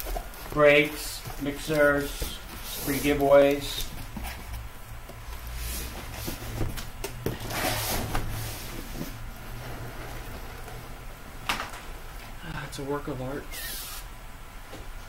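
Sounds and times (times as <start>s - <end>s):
cardboard rubbing and scraping: 0.0s - 4.7s, 5.3s - 6.8s, 7.4s - 11.0s.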